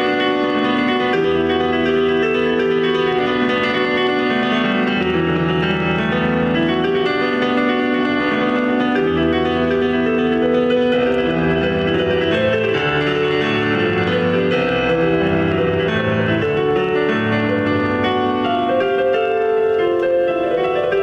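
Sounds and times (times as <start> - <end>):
solo piano chords: 0.0 - 21.0.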